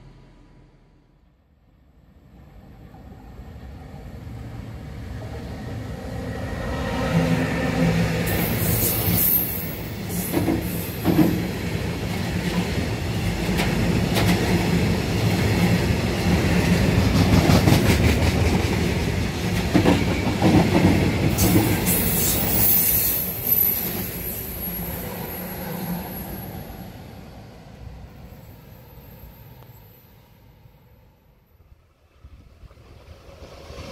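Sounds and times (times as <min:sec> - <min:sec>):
high wheel squeals: 0:08.3 - 0:11.0, 0:21.4 - 0:26.7
train wheels clattering: 0:08.3 - 0:11.6.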